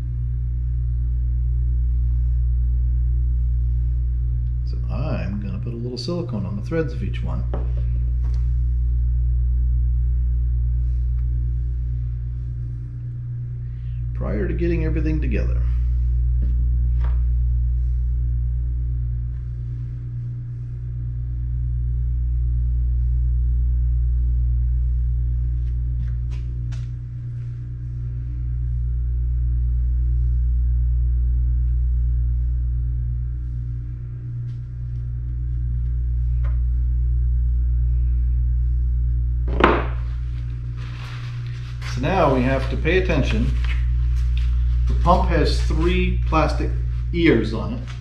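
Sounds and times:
machinery humming: 0.0 - 48.0.

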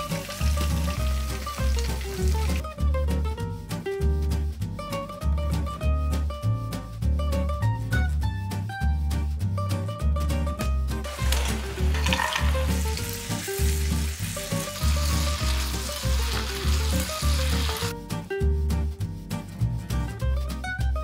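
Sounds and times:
food sizzling in hot oil: 0.0 - 2.6, 11.0 - 17.9
jazzy music with plucked bass: 0.0 - 21.0.

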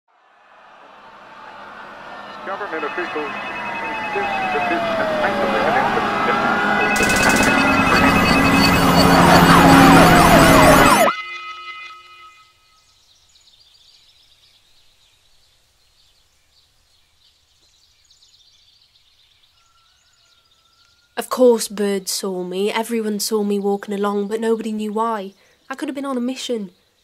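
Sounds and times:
emergency sirens wailing: 0.7 - 11.9
steady alarm tones: 1.6 - 12.4.

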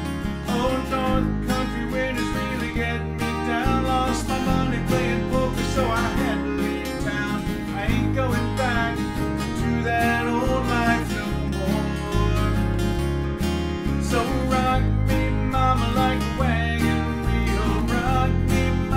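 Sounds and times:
acoustic guitars strumming: 0.0 - 18.9
man singing: 0.2 - 12.9, 13.8 - 18.9.

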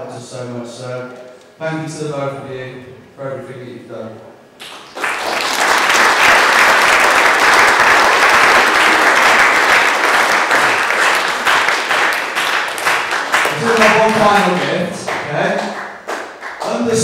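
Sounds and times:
guests applauding: 4.6 - 17.0.

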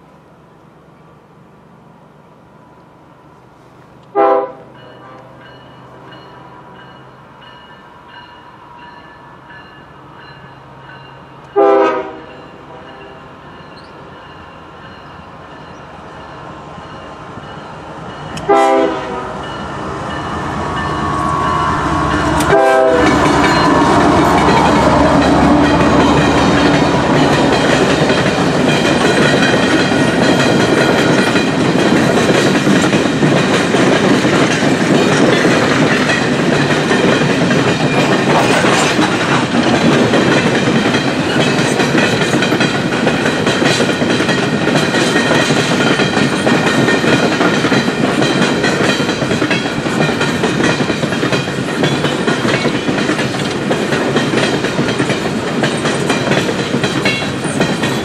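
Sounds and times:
diesel locomotive engine: 0.0 - 58.0
train horn blasts: 4.1 - 5.7, 11.4 - 13.4, 18.4 - 19.7, 20.6 - 26.6.

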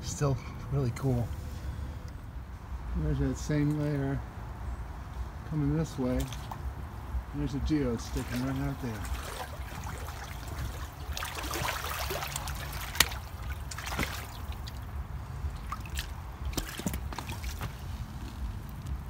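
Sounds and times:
creek trickling: 5.6 - 19.0.

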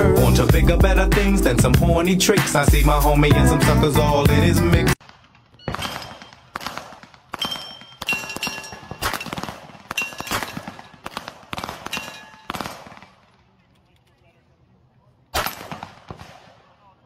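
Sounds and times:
steel targets ringing: 5.5 - 6.5, 7.4 - 11.0, 11.9 - 12.5
handgun shots: 5.7 - 13.1, 15.4 - 16.5.

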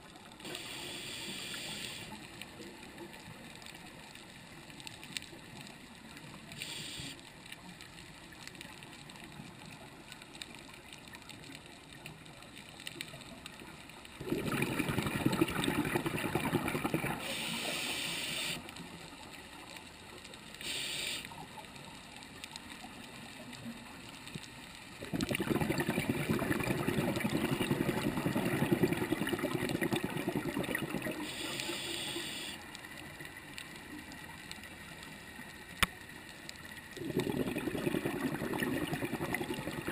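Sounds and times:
hissing regulator inhalations: 0.5 - 2.2, 17.2 - 18.6, 20.6 - 21.3, 31.0 - 32.6
scuba regulator exhalation bubbles: 14.2 - 17.4, 25.0 - 32.1, 37.0 - 39.9.

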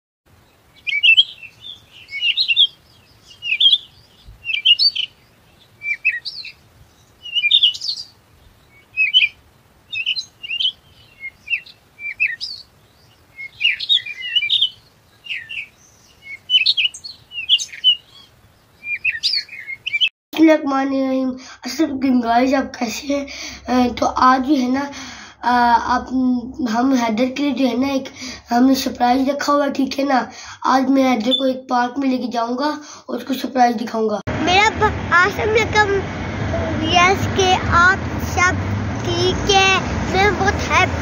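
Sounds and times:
songbirds chirping: 0.3 - 20.1.

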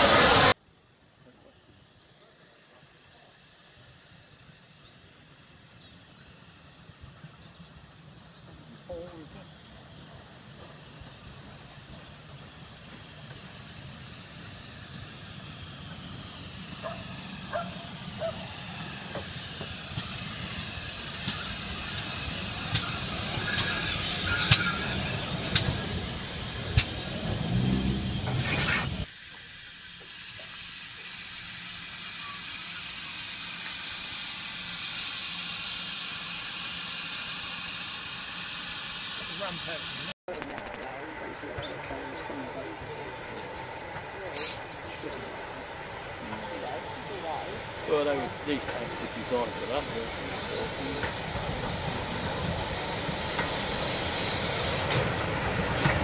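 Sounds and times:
steam hissing from engine: 0.0 - 0.6, 2.3 - 56.0
steam locomotive pulling in: 0.0 - 0.6, 1.3 - 56.0
sharp clicks: 40.3 - 41.0.

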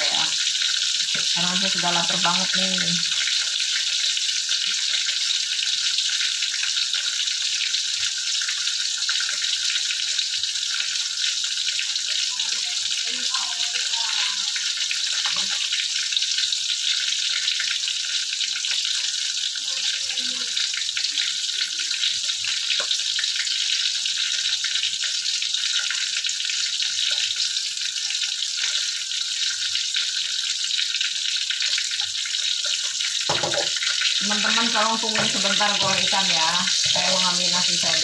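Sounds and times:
fish frying in hot oil: 0.0 - 38.0.

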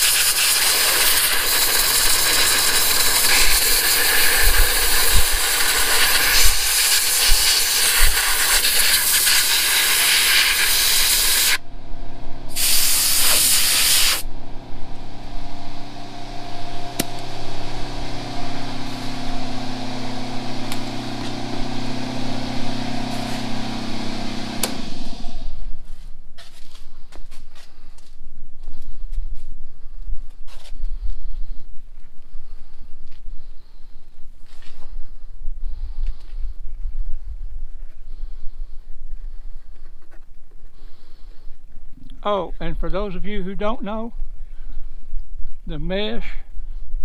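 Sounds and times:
air blow gun hissing: 0.0 - 11.6, 12.5 - 14.3
air compressor motor humming: 0.0 - 25.8.

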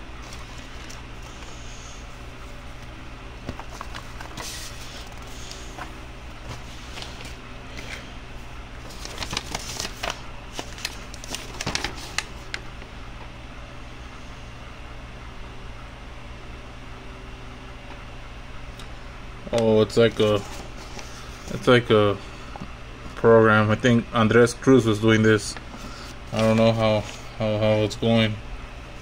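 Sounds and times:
paper rustling: 0.2 - 1.6, 3.4 - 8.1, 8.8 - 12.6, 20.0 - 21.6, 25.8 - 27.3.

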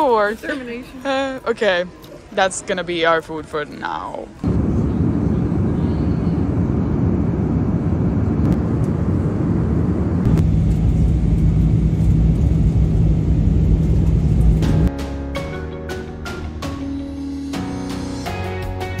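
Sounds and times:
jet engine and airflow drone: 4.4 - 14.8
steady hum: 4.4 - 14.9.

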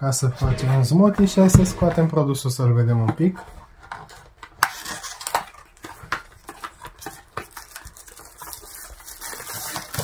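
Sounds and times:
cardboard packaging handled: 3.2 - 10.0.

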